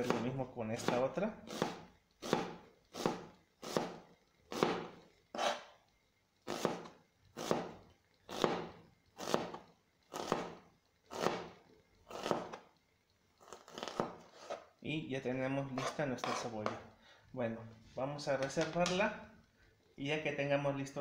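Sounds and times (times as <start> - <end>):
knife slicing onion on cutting board: 0.0 - 5.7, 6.4 - 12.6, 13.4 - 14.7, 15.7 - 16.8.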